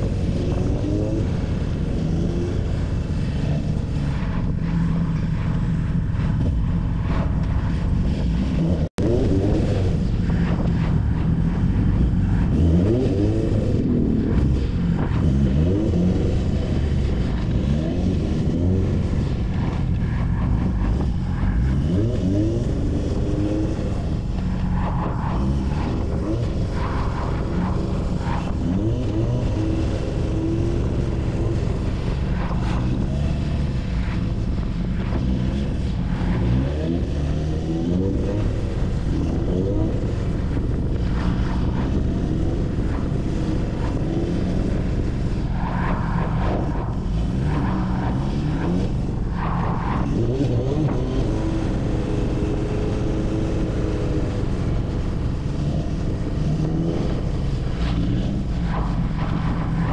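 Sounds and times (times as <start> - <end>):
motorcycle exhaust accelerating: 0.0 - 59.9
wind rushing: 2.1 - 59.9.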